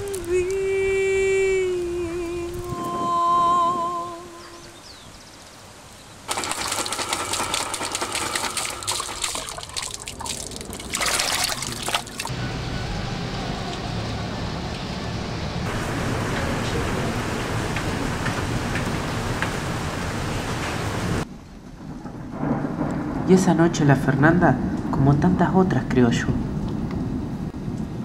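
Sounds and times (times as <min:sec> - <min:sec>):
person singing with vibrato: 0:00.0 - 0:04.8
rain hissing: 0:00.0 - 0:25.2
water sloshing in a bucket: 0:06.3 - 0:12.3.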